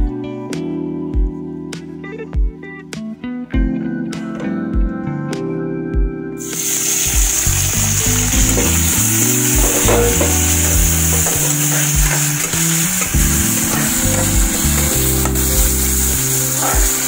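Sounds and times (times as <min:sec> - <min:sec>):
background music: 0:00.0 - 0:17.0
food frying in hot oil: 0:06.4 - 0:17.0
steel spatula stirring: 0:09.5 - 0:15.3.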